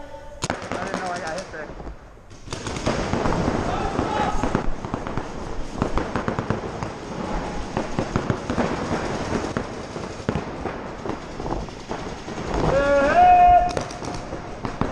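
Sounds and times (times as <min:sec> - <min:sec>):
paintball markers firing: 0:13.5 - 0:14.9.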